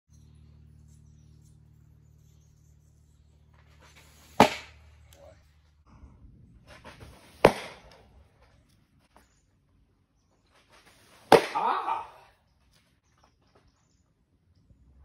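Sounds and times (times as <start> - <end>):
baseball smacking into leather mitt: 4.4 - 4.8, 7.3 - 8.0, 11.2 - 11.7.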